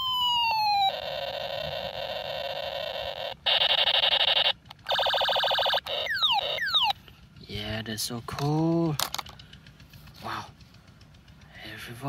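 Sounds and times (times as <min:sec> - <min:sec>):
toy gun falling siren tone: 0:00.0 - 0:07.0
pulsing rapid-fire burst: 0:00.1 - 0:06.9
harsh electronic buzz: 0:00.8 - 0:06.9.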